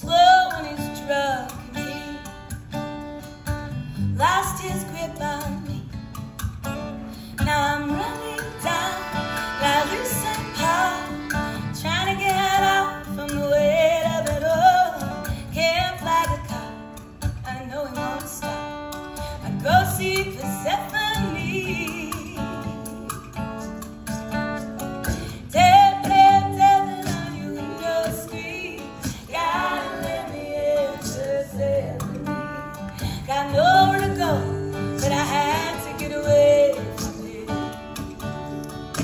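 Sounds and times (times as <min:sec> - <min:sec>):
women singing: 0:00.0 - 0:02.5, 0:04.1 - 0:05.9, 0:07.4 - 0:16.8, 0:19.4 - 0:22.8, 0:25.3 - 0:39.0
acoustic guitar strumming: 0:00.0 - 0:39.0.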